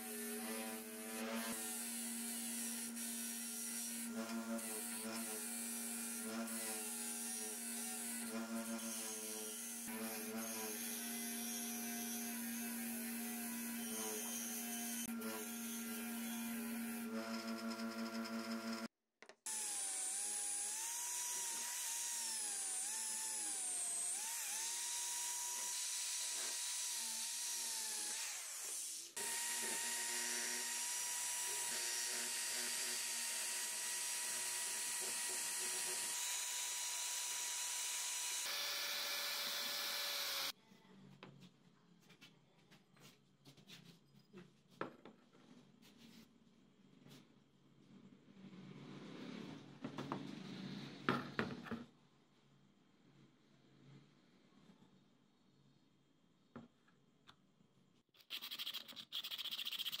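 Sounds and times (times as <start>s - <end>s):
high-pitched power tool whine: 19.5s - 40.6s
brush bit spinning on metal: 58.2s - 60.0s.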